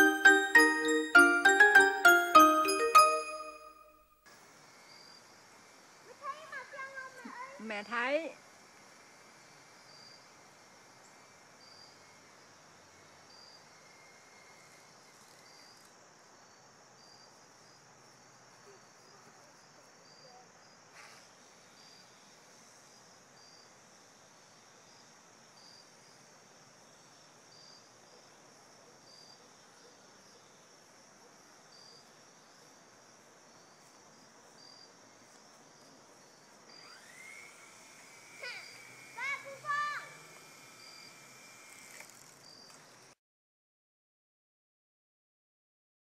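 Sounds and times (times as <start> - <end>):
insects chirping: 4.7 - 39.6, 40.5 - 43.0
high insect drone: 31.7 - 42.8.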